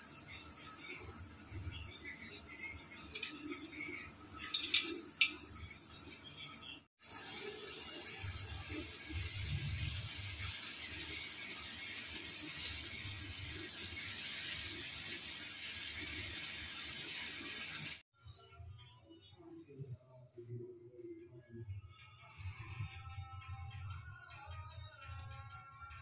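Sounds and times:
noodles simmering with bubbling hiss: 0.0 - 18.0.

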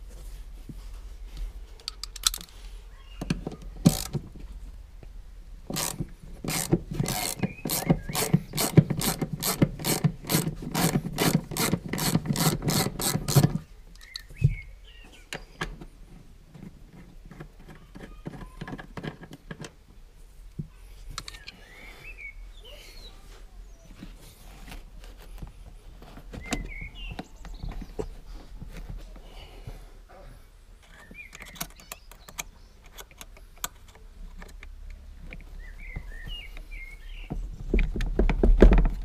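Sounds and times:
ratchet wrench clicking: 3.9 - 4.2, 5.7 - 14.2.

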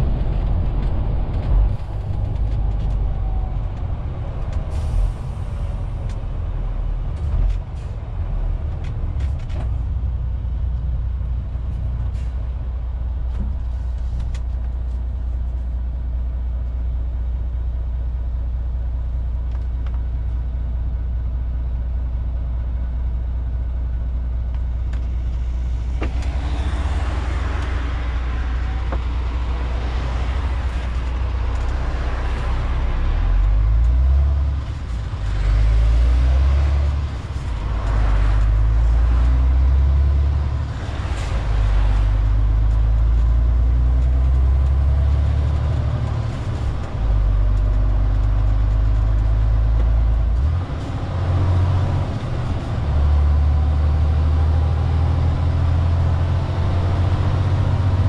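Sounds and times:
tyre and wind noise: 0.0 - 12.4
road noise: 0.0 - 58.0
truck diesel engine drone: 0.0 - 58.0.

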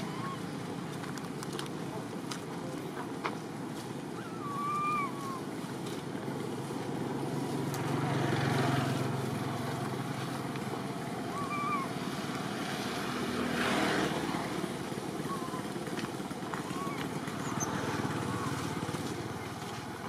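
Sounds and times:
infant monkey coo calls: 0.0 - 0.8, 4.1 - 5.6, 11.2 - 12.2, 14.2 - 19.6
low traffic rumble: 0.0 - 20.0.

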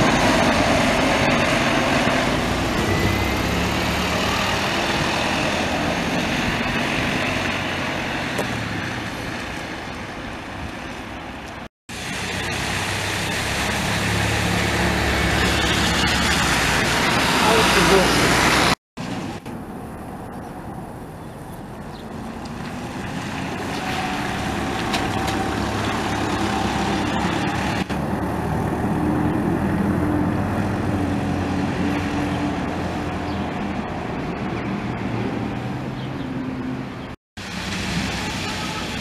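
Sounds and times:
diesel bus engine running: 0.0 - 10.7
tyres hissing on wet road: 11.9 - 19.4, 22.4 - 28.8, 37.4 - 39.0.

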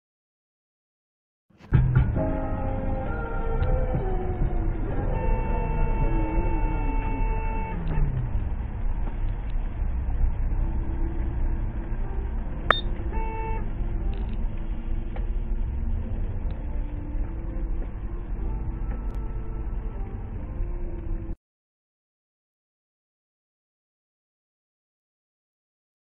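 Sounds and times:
car driving on wet road: 2.8 - 19.6
beep tone: 12.7 - 13.0.

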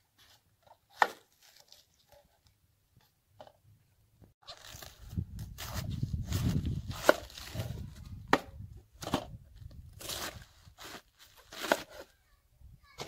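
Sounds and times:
knife cutting cabbage: 10.0 - 12.0.

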